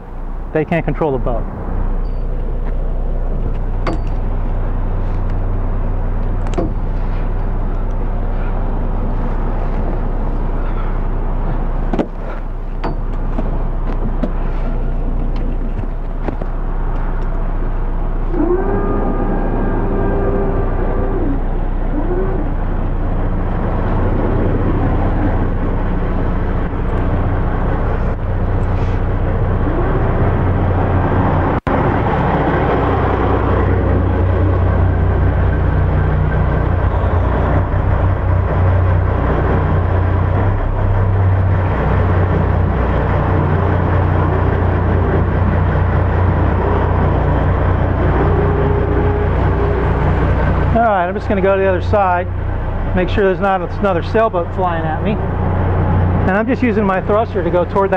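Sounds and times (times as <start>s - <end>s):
boat diesel engines idling: 0.0s - 57.9s.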